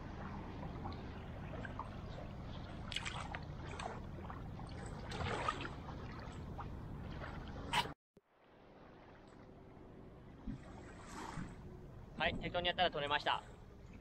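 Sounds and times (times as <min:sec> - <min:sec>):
small water splashes: 0:00.0 - 0:07.8
water lapping at shoreline: 0:00.0 - 0:14.0.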